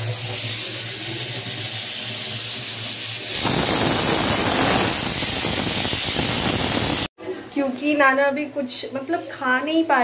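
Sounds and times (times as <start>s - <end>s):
pressure cooker venting steam: 0.0s - 7.1s.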